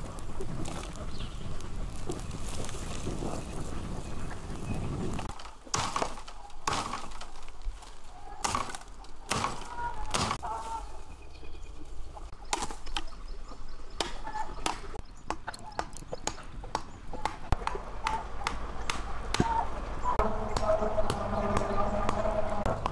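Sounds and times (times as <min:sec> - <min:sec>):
sharp cracks: 0:05.3 - 0:07.8, 0:08.4 - 0:10.4, 0:14.0 - 0:19.7.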